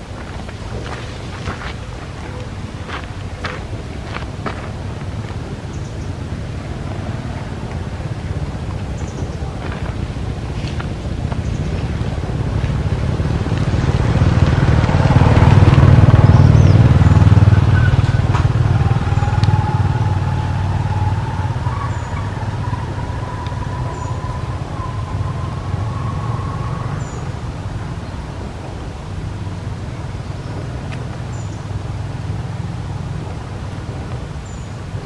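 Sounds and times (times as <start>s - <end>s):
rising whine: 0.0s - 35.0s
vehicle engine rumbling: 0.0s - 35.0s.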